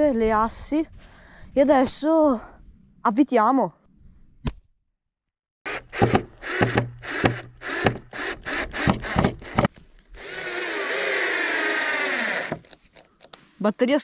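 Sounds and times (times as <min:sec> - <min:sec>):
cordless drill driving a screw: 0:05.7 - 0:12.8.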